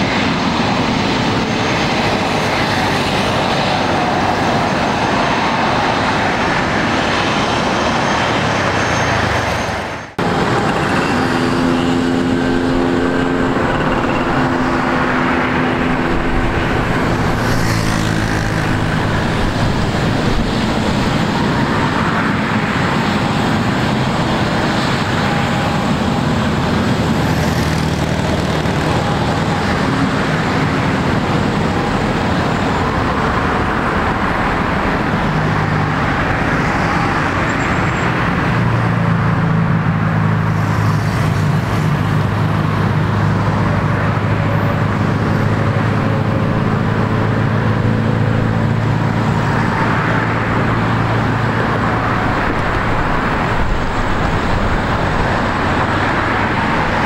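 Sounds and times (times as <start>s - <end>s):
jet engines idling: 0.0s - 57.0s.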